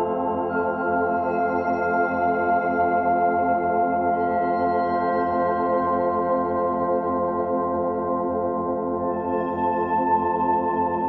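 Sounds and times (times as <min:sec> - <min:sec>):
ambient music with sustained chords: 0:00.0 - 0:11.0.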